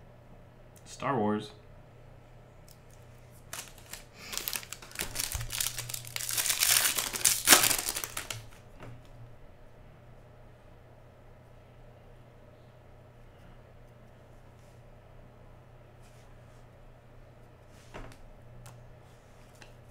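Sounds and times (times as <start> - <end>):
foil wrapper crinkling: 3.3 - 8.6.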